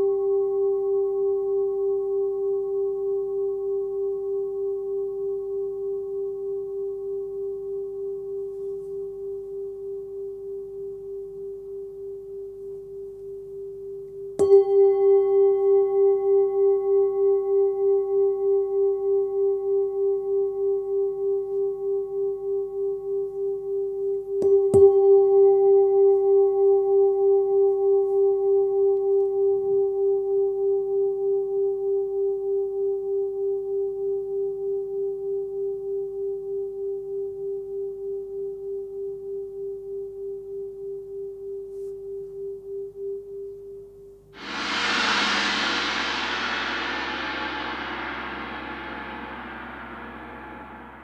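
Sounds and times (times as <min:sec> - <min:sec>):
singing bowl ringing: 0:14.4 - 0:19.8
singing bowl pulsing tone: 0:14.4 - 0:21.4, 0:44.4 - 0:51.0.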